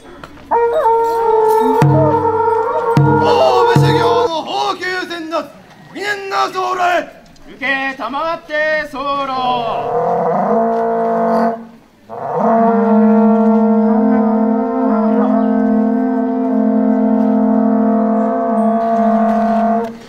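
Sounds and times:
conch shell trumpets blowing: 0:00.9 - 0:04.3, 0:10.0 - 0:20.0.

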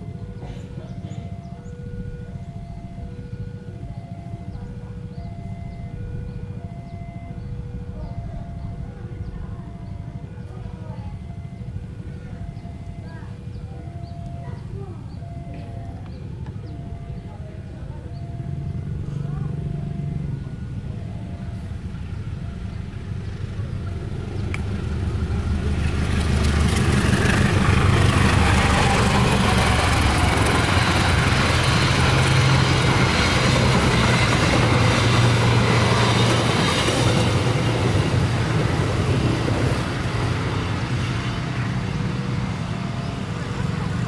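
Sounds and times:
locomotive engine drone: 0:00.0 - 0:44.0
coaches clattering over rails: 0:14.5 - 0:44.0.

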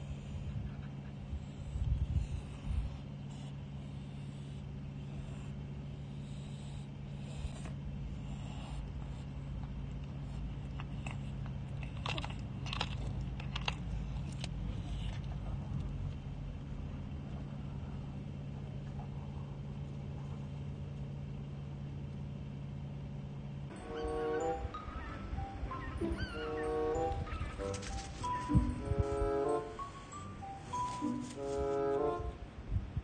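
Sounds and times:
low hum: 0:00.0 - 0:33.0
cat chewing fish: 0:09.0 - 0:16.0.

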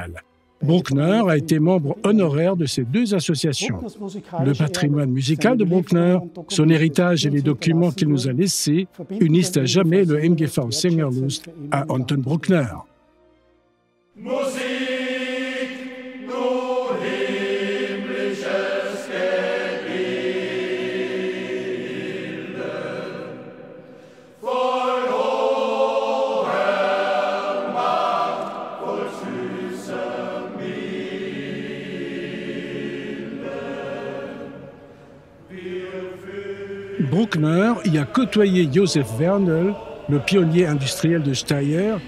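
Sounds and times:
men's choir singing: 0:14.2 - 0:42.0.

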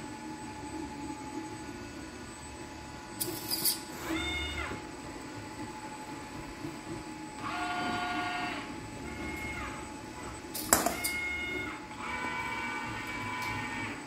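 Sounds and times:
robot servo motors whining: 0:07.4 - 0:14.0.

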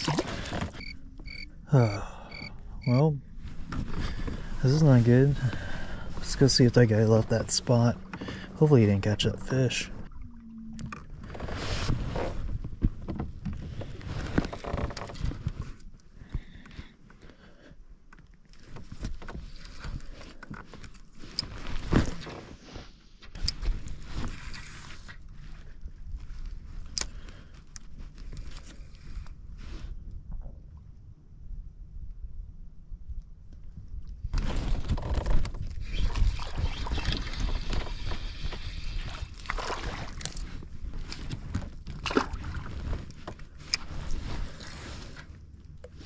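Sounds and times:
water noise: 0:00.0 - 0:12.7, 0:35.9 - 0:46.0
rumbling wind: 0:00.0 - 0:17.0, 0:25.1 - 0:46.0.

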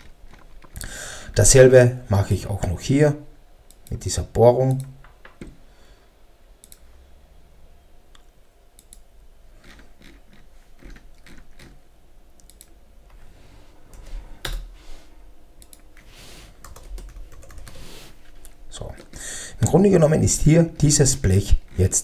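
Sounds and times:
computer mouse clicks: 0:06.6 - 0:06.8, 0:08.2 - 0:09.0, 0:12.4 - 0:12.8, 0:15.6 - 0:16.0.

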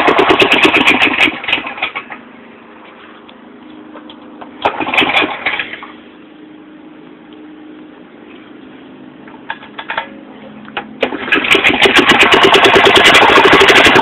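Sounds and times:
small engine running: 0:00.0 - 0:02.2, 0:11.0 - 0:14.0.

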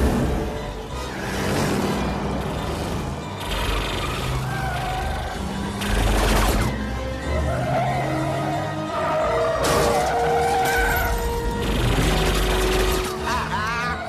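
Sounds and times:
dramatic film score: 0:00.0 - 0:14.0.

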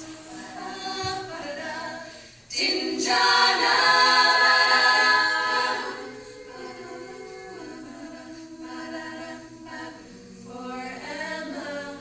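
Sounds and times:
female group singing in harmony: 0:00.0 - 0:12.0.

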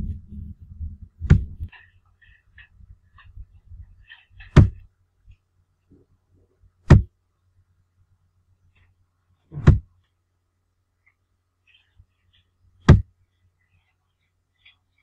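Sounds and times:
faint low hum: 0:00.0 - 0:15.0
sharp knocks: 0:04.4 - 0:04.8, 0:06.9 - 0:07.1, 0:09.6 - 0:09.9, 0:12.8 - 0:13.1.

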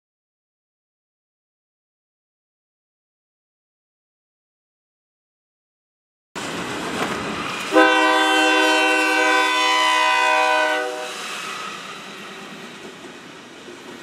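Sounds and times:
freight train rumbling past: 0:06.4 - 0:14.0
locomotive air horn: 0:07.7 - 0:11.4.

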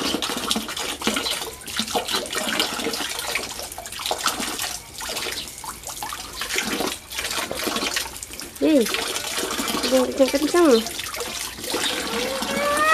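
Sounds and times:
water pouring from a pipe: 0:00.0 - 0:12.9
child splashing in water: 0:11.0 - 0:12.9.

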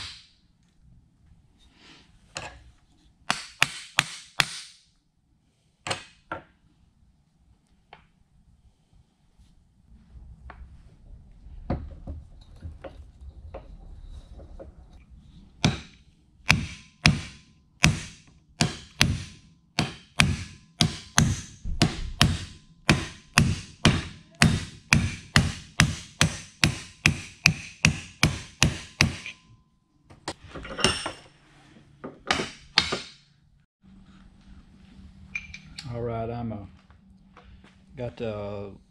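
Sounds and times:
hammer striking metal: 0:15.6 - 0:29.6, 0:32.3 - 0:33.3.

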